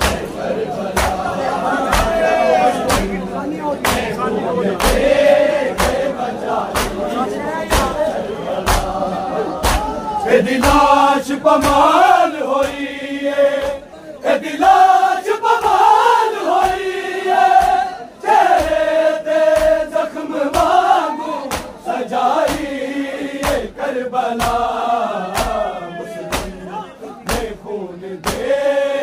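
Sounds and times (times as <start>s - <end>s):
hands slapping chests: 0.0s - 3.2s, 3.8s - 4.2s, 4.8s - 7.1s, 7.7s - 8.0s, 8.6s - 9.0s, 9.6s - 10.0s, 10.6s - 10.9s, 11.6s - 12.0s, 19.5s - 19.9s, 20.5s - 20.8s, 21.4s - 21.8s, 22.4s - 22.8s, 23.4s - 23.7s, 24.4s - 25.7s, 26.3s - 26.6s, 27.3s - 27.6s, 28.2s - 28.5s
crowd chanting: 0.0s - 29.0s.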